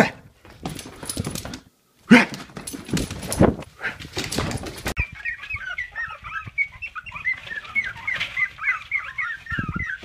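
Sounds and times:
puppies squeaking and whimpering: 4.8 - 10.0.

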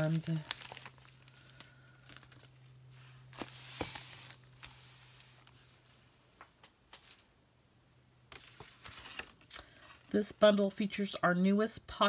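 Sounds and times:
plastic wrapping rustling: 0.0 - 6.2
low steady hum: 0.0 - 12.0.

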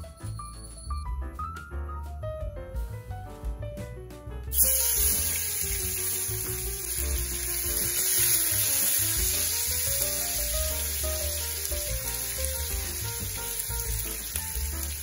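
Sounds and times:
background music with bass: 0.0 - 15.0
onions sizzling in oil: 4.5 - 15.0.

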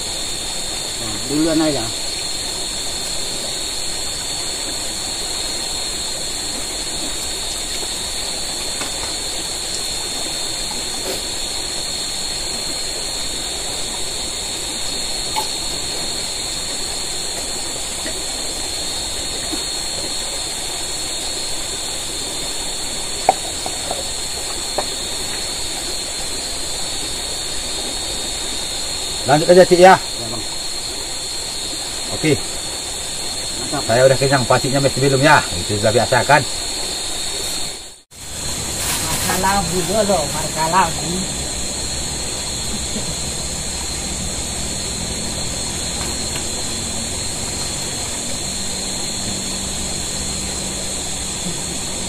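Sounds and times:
flowing river water: 0.0 - 52.0
insects droning: 0.0 - 52.0.

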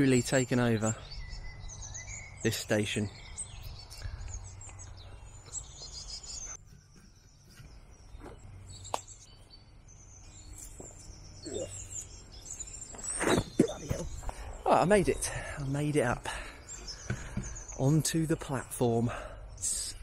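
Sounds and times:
small birds chirping and trilling: 0.0 - 20.0.

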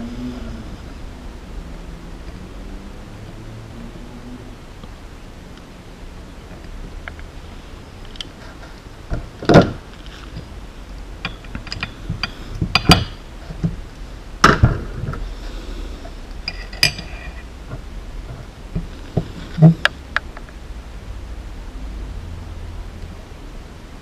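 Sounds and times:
metallic clinks: 11.2 - 13.2, 16.4 - 17.4.

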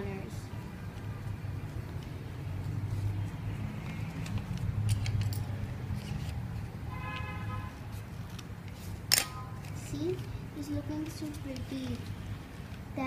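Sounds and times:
paper rustling: 5.9 - 6.8, 7.7 - 12.9.

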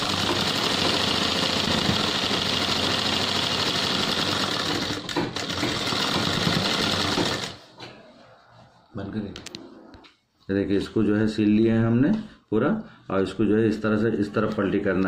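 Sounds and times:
sewing machine running: 0.0 - 7.6.

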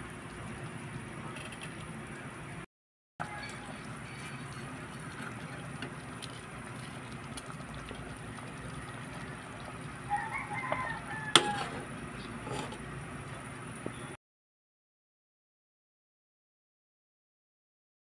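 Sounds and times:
low background hum: 0.0 - 14.2
rooster crowing: 3.2 - 3.9, 10.0 - 11.9.

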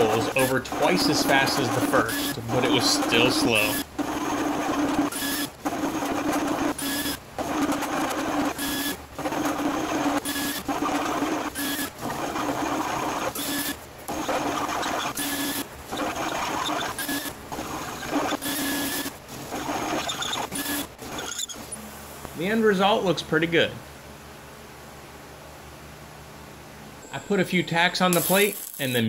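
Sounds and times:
drill grinding into steel: 0.0 - 21.7
drill press motor hum: 0.0 - 22.3.

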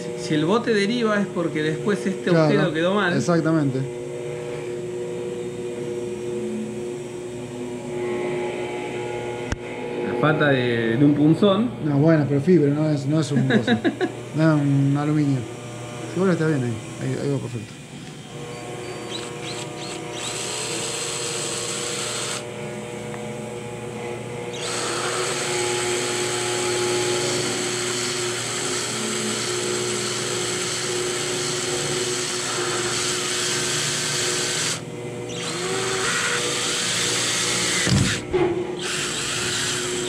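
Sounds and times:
cordless drill boring: 16.0 - 22.6, 24.4 - 40.0.

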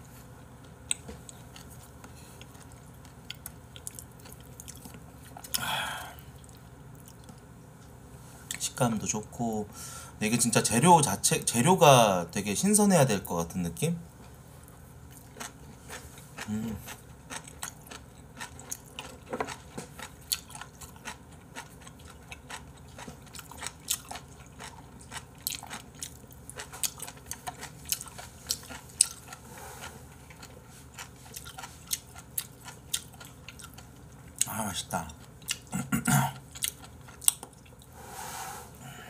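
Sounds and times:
person chewing crunchy food: 0.6 - 7.9, 15.0 - 38.0.

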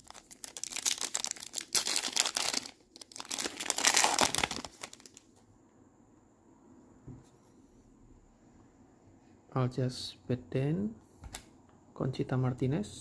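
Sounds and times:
foil wrapper crinkling and tearing: 0.0 - 5.3.

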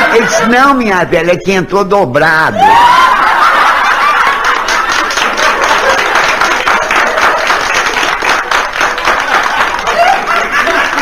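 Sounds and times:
audience laughing: 0.0 - 0.7, 3.0 - 8.0, 8.9 - 11.0
audience clapping: 3.4 - 11.0.

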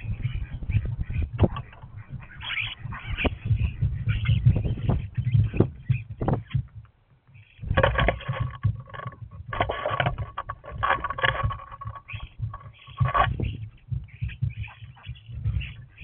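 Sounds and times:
wing flutters: 0.0 - 16.0
claws scrabbling on feeder: 0.4 - 16.0.

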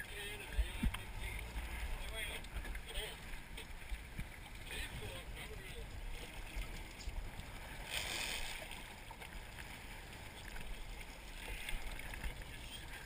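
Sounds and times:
water sloshing against boat hull: 0.0 - 13.0
water splash: 6.1 - 13.0.

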